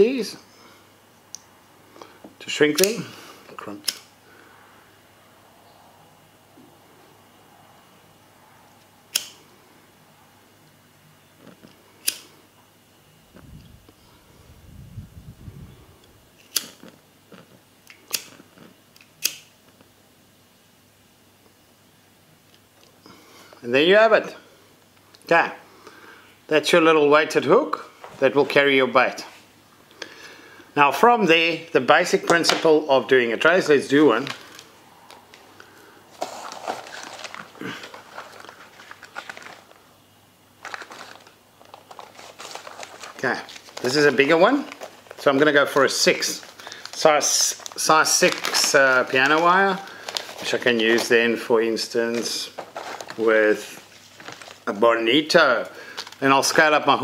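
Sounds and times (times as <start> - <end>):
soft handling noise: 33.5 - 39.9, 40.6 - 55.0
packaging rustling and crinkling: 33.6 - 40.0, 40.6 - 57.0.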